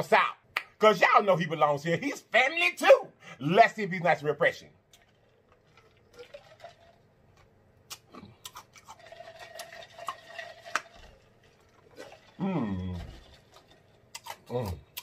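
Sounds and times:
sipping and swallowing: 4.9s - 7.0s, 7.8s - 15.0s
person humming: 12.4s - 13.1s.

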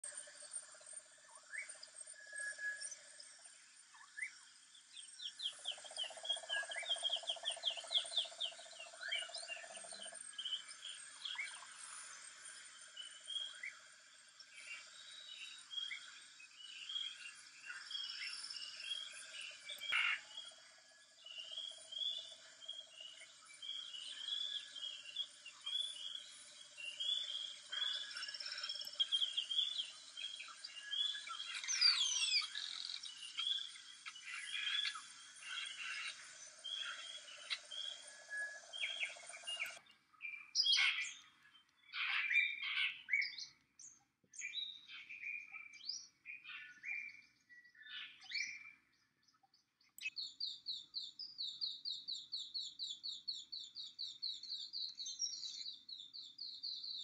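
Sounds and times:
insects droning: 0.1s - 41.9s
birds chirping and trilling: 0.2s - 57.0s.

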